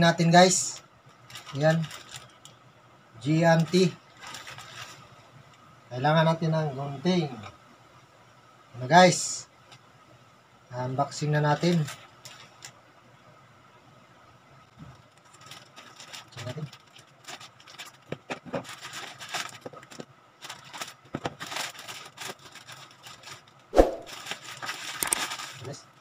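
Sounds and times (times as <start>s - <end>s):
plastic crinkling and rustling: 0.3s - 2.6s, 3.4s - 5.7s, 11.2s - 12.8s, 14.7s - 26.0s
scissors cutting plastic mailer: 24.1s - 25.6s.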